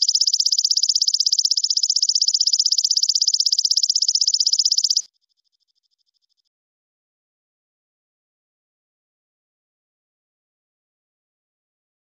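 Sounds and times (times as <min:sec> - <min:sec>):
insect high trill: 0:00.0 - 0:05.1.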